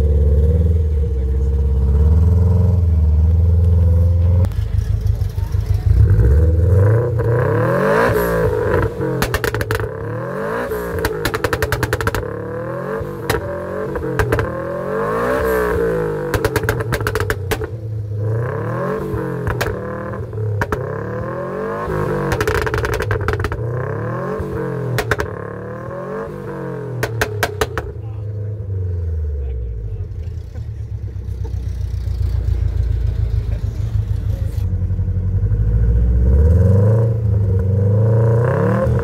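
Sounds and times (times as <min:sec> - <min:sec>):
car engine revving: 0:00.0 - 0:39.0
exhaust pops and crackles: 0:08.6 - 0:10.1, 0:10.9 - 0:12.4, 0:13.2 - 0:14.8, 0:16.2 - 0:17.9, 0:19.0 - 0:21.3, 0:22.2 - 0:23.8, 0:24.4 - 0:25.6, 0:27.0 - 0:28.2.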